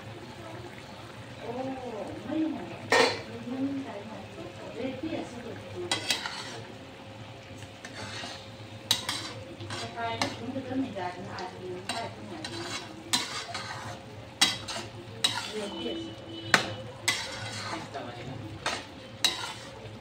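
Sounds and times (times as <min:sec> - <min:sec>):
liquid sizzling: 0:00.0 - 0:20.0
metal spatula scraping a wok: 0:05.9 - 0:06.7, 0:07.8 - 0:10.6, 0:11.8 - 0:20.0
spatula knocking on pan: 0:16.5 - 0:17.6.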